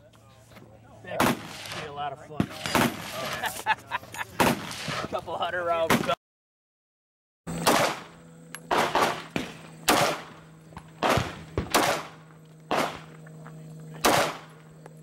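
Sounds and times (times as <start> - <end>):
pistol shots with echo: 7.6 - 8.1, 8.7 - 13.1, 14.0 - 14.6.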